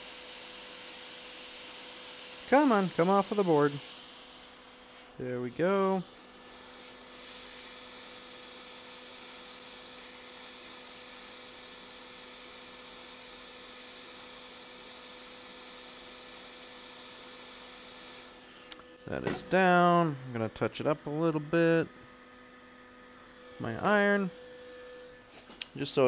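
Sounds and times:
electrical hum: 17.5 - 26.0.

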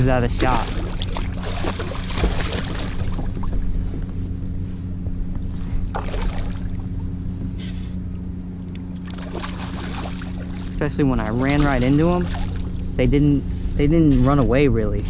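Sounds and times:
steady low hum: 0.0 - 15.0
fish splashing at surface: 0.4 - 3.4, 5.9 - 6.8, 9.0 - 10.8.

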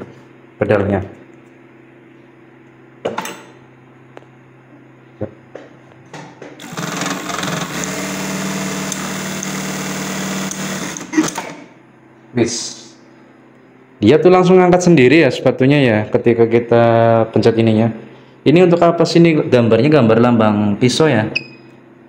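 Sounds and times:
sewing machine hum: 6.6 - 11.7
sewing machine rapid stitching: 6.6 - 11.7.

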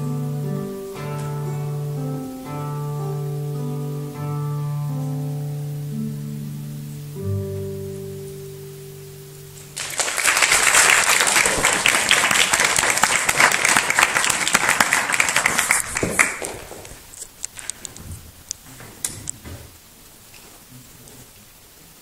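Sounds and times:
classical guitar chord ringing: 0.0 - 9.8
audience applause: 9.6 - 16.9.

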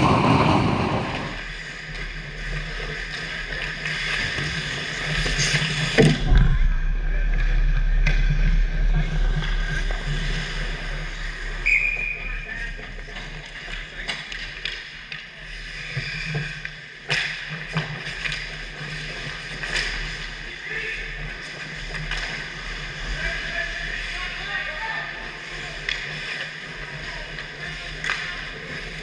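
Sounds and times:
skates on ice: 0.0 - 6.0, 9.6 - 29.0
steady hum: 0.0 - 15.1
hockey stick and puck clacks: 1.9 - 6.2, 12.2 - 20.5, 21.2 - 22.9, 25.5 - 29.0.

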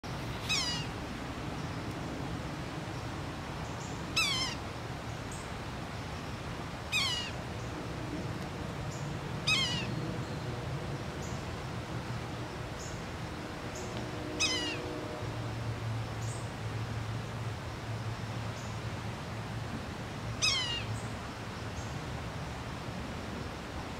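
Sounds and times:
bird mewing call: 0.4 - 0.9, 4.2 - 4.6, 6.9 - 7.4, 9.4 - 10.0, 14.4 - 14.9, 20.4 - 20.9.

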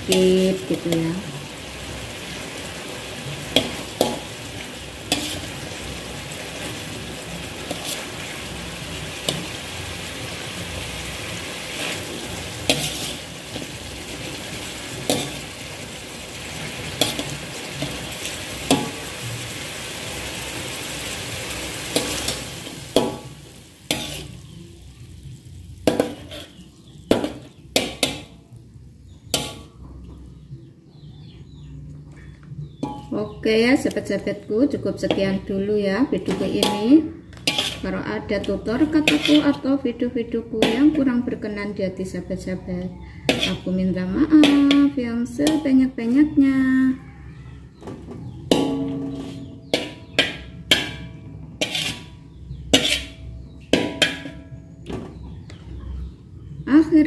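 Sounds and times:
chicken sizzling in a wok: 0.0 - 29.8, 32.7 - 56.0
metal spatula clinking on pan: 36.3 - 37.8, 43.3 - 43.6, 48.5 - 52.1, 52.7 - 54.6.

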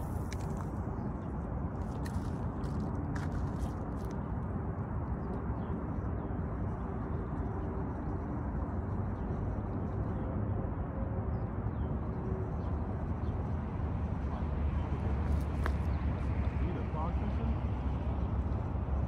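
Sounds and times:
distant engines hum: 0.0 - 19.0
wind rumbling on microphone: 0.0 - 19.0.

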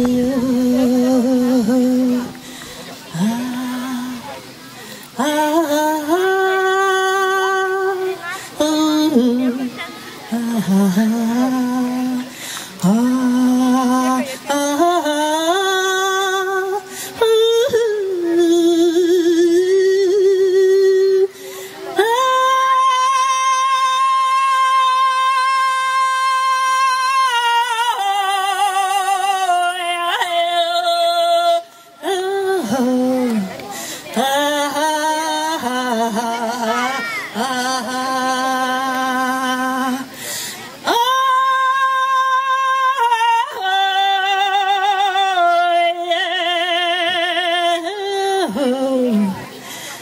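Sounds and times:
woman singing solo: 0.0 - 2.4
woman singing with vibrato: 0.0 - 4.5, 5.2 - 50.0.

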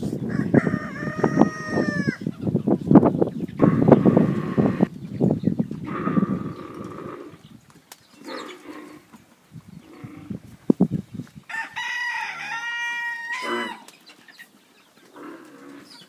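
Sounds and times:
rooster crowing: 0.2 - 2.2, 11.5 - 13.9.

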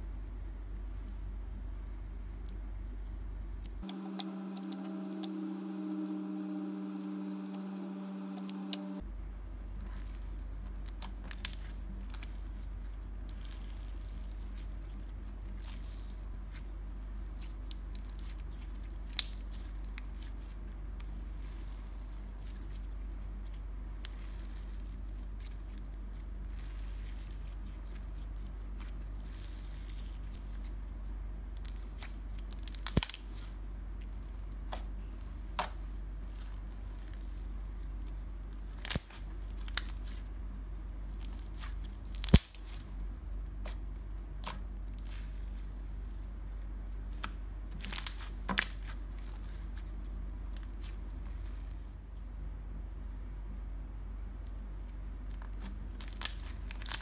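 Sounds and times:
steady low hum: 0.0 - 57.0
sharp slime pops: 31.7 - 33.4, 42.1 - 42.8.

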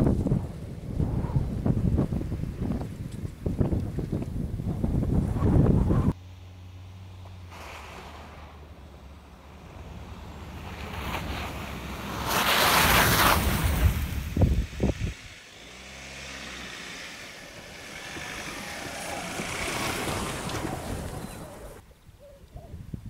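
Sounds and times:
wind thumps on microphone: 0.0 - 6.2, 11.0 - 15.3
pickup truck driving past: 6.2 - 21.8.

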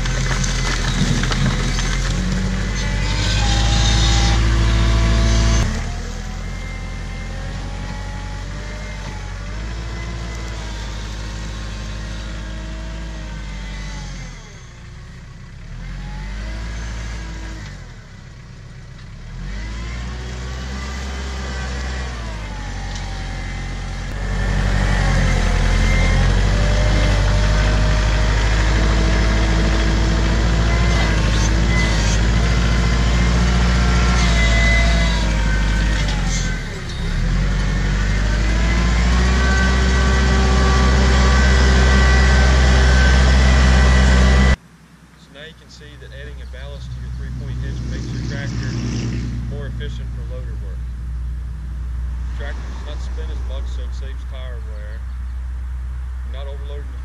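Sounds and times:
tractor diesel engine revving: 0.0 - 57.0.

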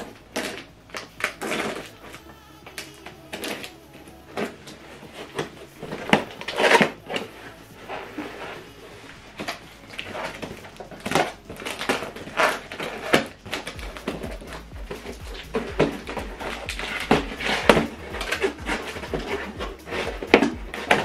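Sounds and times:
cardboard flaps scraping and thumping: 9.4 - 21.0
scissors cutting packing tape: 9.9 - 21.0.

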